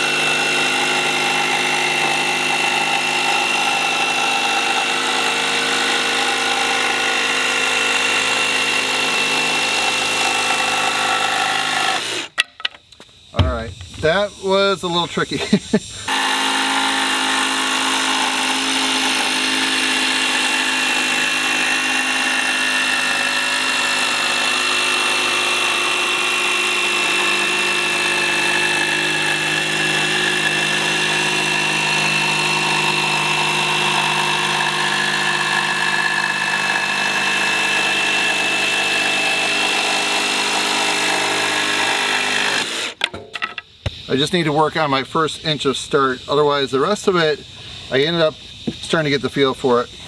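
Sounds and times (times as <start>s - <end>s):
jigsaw cutting plywood: 0.0s - 12.3s, 16.1s - 43.0s.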